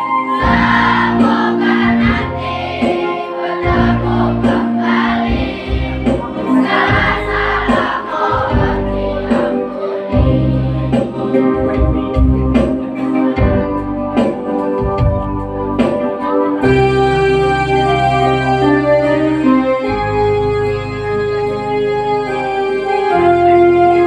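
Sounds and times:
children's choir singing: 0.0 - 12.1.

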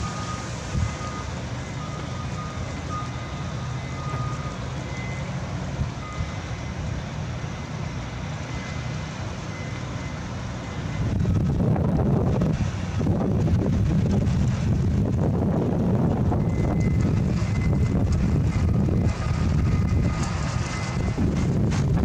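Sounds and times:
high-pitched reversing beeps: 0.0 - 5.4, 6.0 - 11.2, 16.3 - 18.0
low-pitched reversing beeps: 0.0 - 12.5, 15.0 - 22.0
construction machinery rumbling: 0.0 - 22.0.

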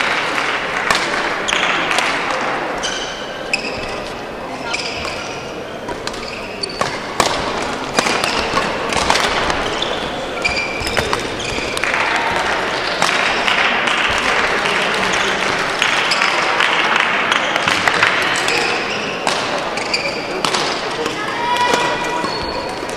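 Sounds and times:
rackets striking shuttlecock: 0.0 - 3.7, 4.9 - 22.9
sports hall din: 0.0 - 22.9
shoe squeaks: 2.8 - 4.0, 4.6 - 7.1, 9.5 - 11.8, 19.8 - 20.4, 21.7 - 22.8.

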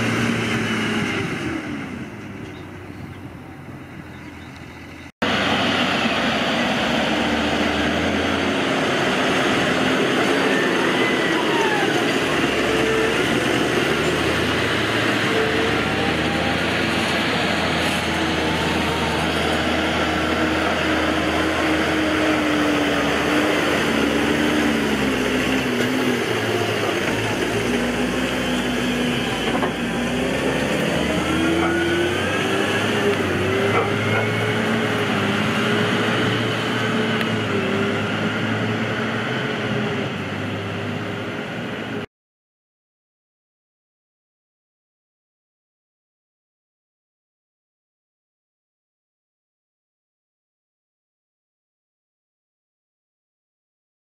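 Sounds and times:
tractor diesel engines under load: 0.0 - 42.1.

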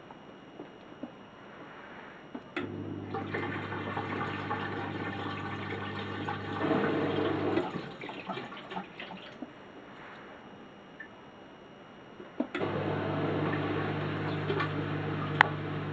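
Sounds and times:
dishwasher drain pump humming: 2.3 - 9.5, 12.4 - 15.9.

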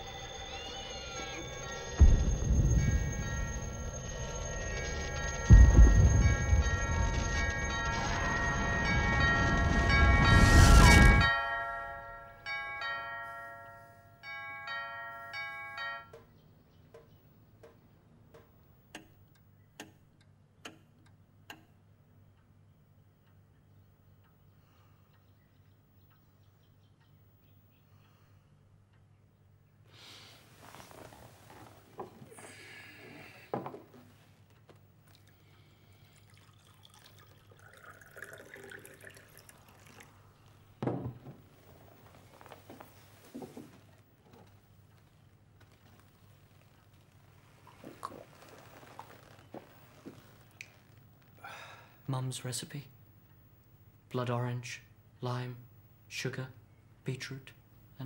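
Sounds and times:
clock chiming bell notes: 0.1 - 16.2
juice trickling into glass: 35.1 - 40.7
glass knocks: 40.8 - 41.5.

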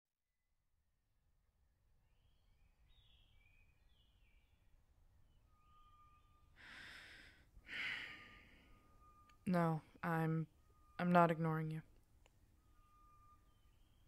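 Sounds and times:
faint woodland ambience: 1.6 - 14.0
small birds chirping: 2.1 - 6.9
long breathy sigh: 6.6 - 8.9.

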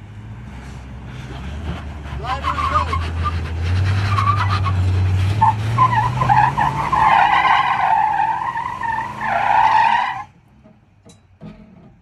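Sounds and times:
truck engine pulling under load: 0.0 - 12.0
tires squealing on rock: 1.1 - 10.4.

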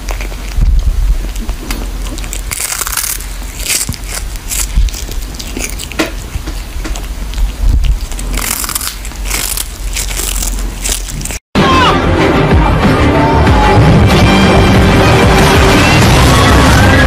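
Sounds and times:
kitten chewing fish crunches: 0.0 - 11.4.

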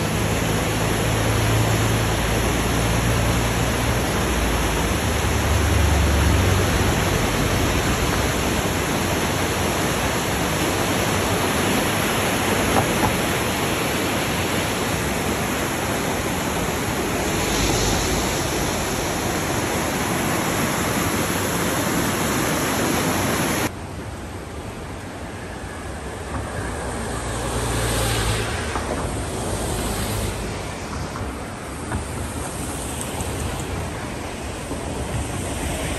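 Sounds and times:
flooded river rushing: 0.0 - 35.9.

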